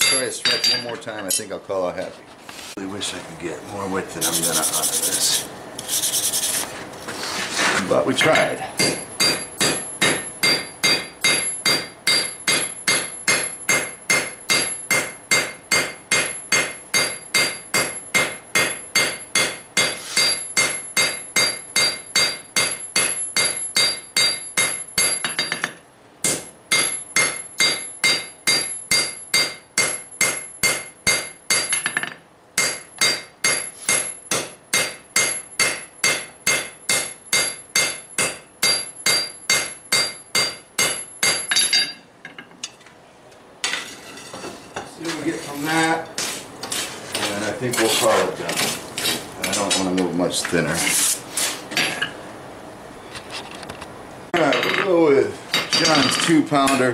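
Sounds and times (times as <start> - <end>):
hammer ringing on anvil: 0.0 - 1.5, 8.3 - 42.0.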